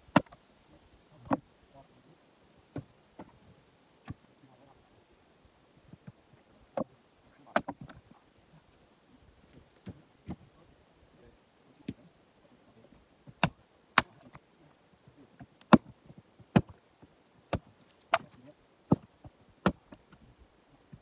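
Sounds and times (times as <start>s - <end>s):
axe chopping wood: 0.1s - 0.4s, 7.5s - 8.0s, 13.3s - 14.4s, 15.4s - 16.8s, 17.5s - 20.1s.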